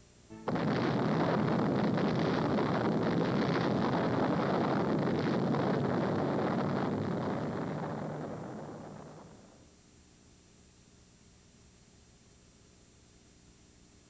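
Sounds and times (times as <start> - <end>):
explosion rumbling roar: 0.4 - 9.6.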